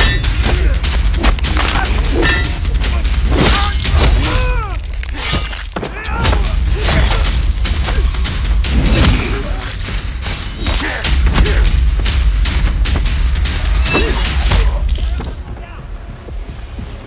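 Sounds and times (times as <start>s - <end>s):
fighters grunting and crying out: 0.0s - 9.8s, 10.5s - 11.8s
fight hits and whooshes: 0.0s - 15.4s
low rumble: 6.4s - 17.0s.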